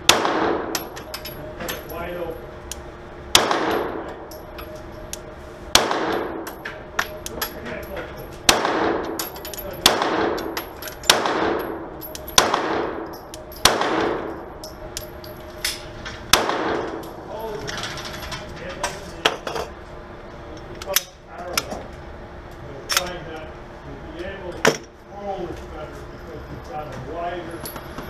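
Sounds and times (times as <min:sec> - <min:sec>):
pistol shots echoing indoors: 0:00.0 - 0:01.8, 0:03.3 - 0:04.3, 0:05.7 - 0:07.6, 0:08.4 - 0:15.0, 0:15.6 - 0:17.2
metallic clicks and tinkles: 0:00.8 - 0:02.8, 0:03.8 - 0:05.3, 0:09.2 - 0:09.8, 0:10.4 - 0:12.4, 0:13.0 - 0:13.7, 0:14.3 - 0:16.2.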